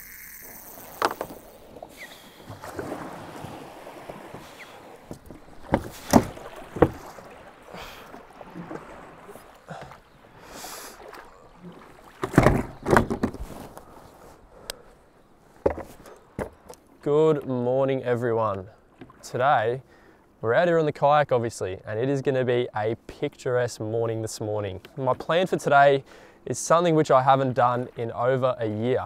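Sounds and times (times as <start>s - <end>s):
kayak paddle strokes splashing: 0.0s - 17.0s
steady wash of water: 1.0s - 12.8s.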